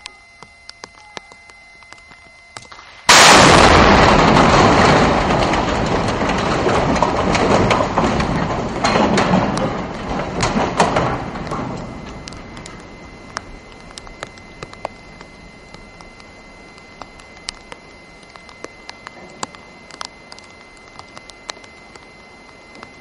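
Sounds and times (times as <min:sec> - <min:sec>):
sharp cracks: 0:00.7 - 0:22.9
explosive blast: 0:02.7 - 0:12.1
falling structure crashing: 0:02.7 - 0:23.0.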